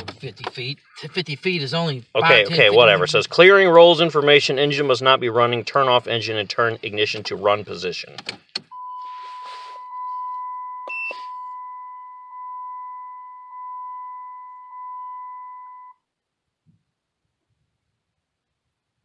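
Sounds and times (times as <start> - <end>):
car warning chime beeping: 8.7 - 15.9
brief higher beep: 8.8 - 16.0.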